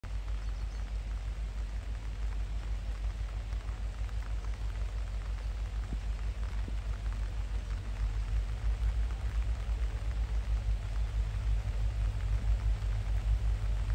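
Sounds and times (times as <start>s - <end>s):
deep rumble: 0.0s - 13.9s
light rain hissing: 0.0s - 13.9s
faint drip ticks: 0.1s - 13.9s.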